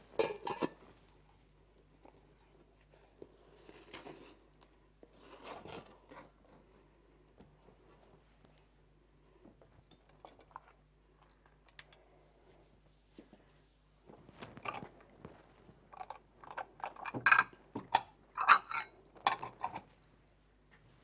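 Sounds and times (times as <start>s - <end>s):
kitchenware clattering: 0.1s - 0.8s, 16.8s - 19.8s.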